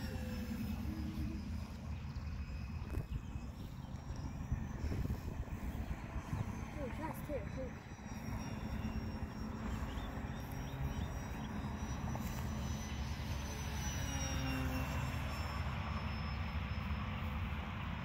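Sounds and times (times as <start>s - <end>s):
wind rumbling on microphone: 0.0s - 13.0s
model plane motor whine: 0.0s - 18.0s.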